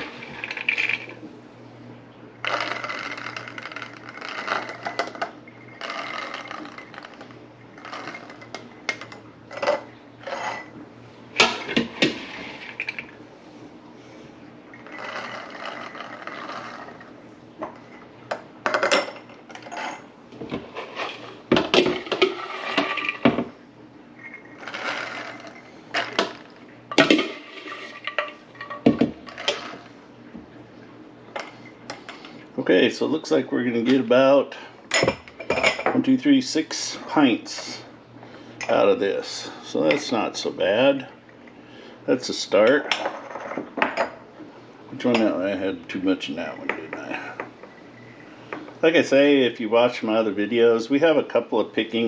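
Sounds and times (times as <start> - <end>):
peas pouring into glass jars: 2.4 - 4.9, 24.6 - 26.5.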